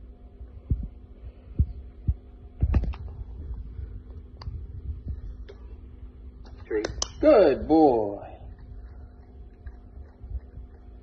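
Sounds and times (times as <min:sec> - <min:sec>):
low background hum: 0:00.0 - 0:11.0
soft low thumps: 0:00.4 - 0:06.5.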